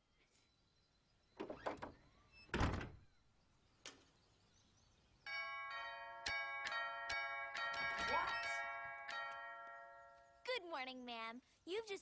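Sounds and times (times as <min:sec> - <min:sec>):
door closing thud: 0:01.4 - 0:03.0
doorbell chiming: 0:05.3 - 0:10.4.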